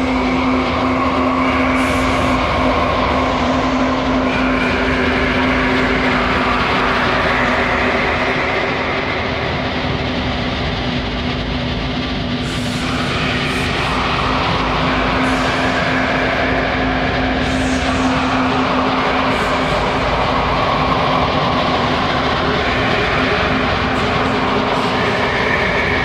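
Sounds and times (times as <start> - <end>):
black metal music: 0.0 - 26.0.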